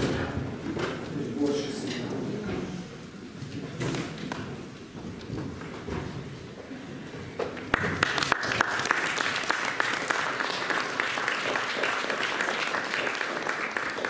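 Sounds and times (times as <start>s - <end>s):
audience applauding: 7.6s - 14.0s.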